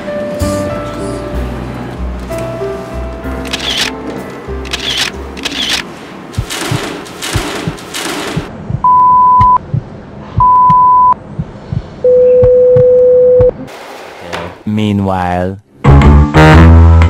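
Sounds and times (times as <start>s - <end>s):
low regular thumps: 6.3s - 13.6s
electronic beeps: 8.8s - 9.6s, 10.4s - 11.2s, 12.0s - 13.5s.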